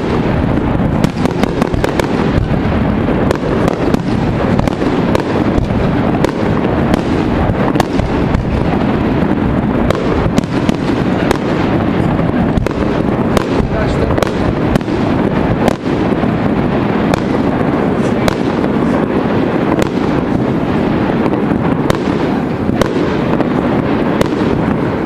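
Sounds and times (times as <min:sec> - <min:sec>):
firework shells booming: 0:00.0 - 0:25.0
sharp firework cracks: 0:00.0 - 0:25.0.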